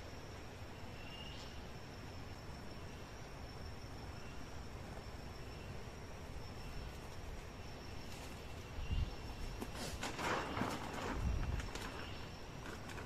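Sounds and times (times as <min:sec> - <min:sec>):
insects trilling: 0:00.0 - 0:13.0.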